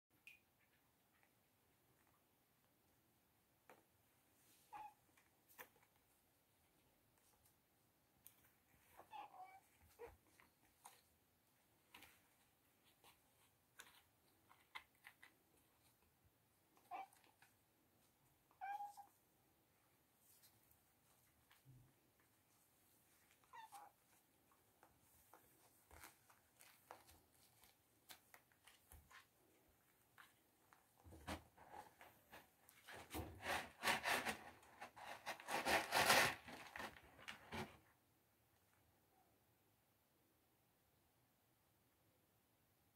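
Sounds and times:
kittens' claws on cardboard: 33.0s - 37.6s.

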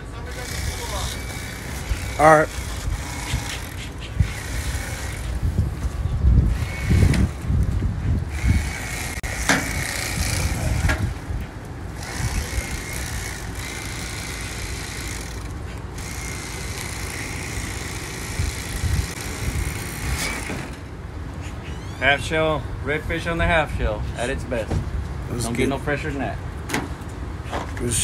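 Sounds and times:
electric knife whining: 0.3s - 5.6s, 6.4s - 7.5s, 8.3s - 11.0s, 12.0s - 20.8s.

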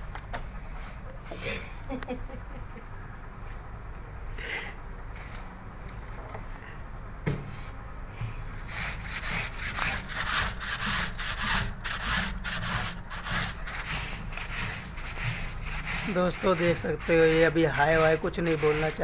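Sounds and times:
jeans scrubbed on concrete: 8.6s - 19.0s.

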